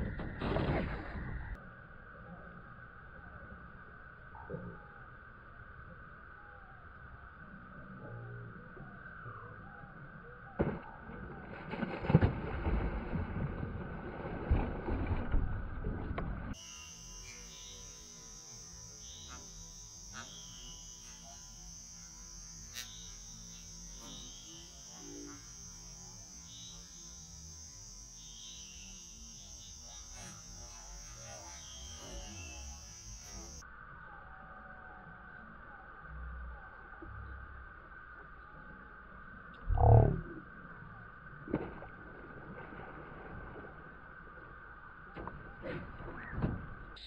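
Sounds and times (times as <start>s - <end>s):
faint low hum: 0.0s - 41.9s
water splashing and thrashing: 10.6s - 16.5s
high-pitched drone: 16.6s - 33.6s.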